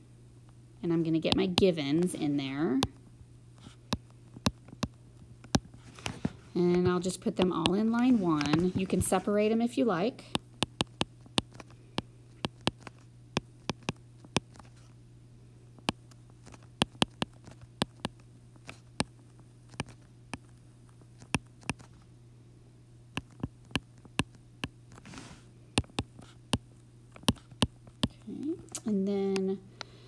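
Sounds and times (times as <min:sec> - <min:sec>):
low electrical hum: 0:00.0 - 0:30.0
stylus tapping on glass screen: 0:25.8 - 0:26.1.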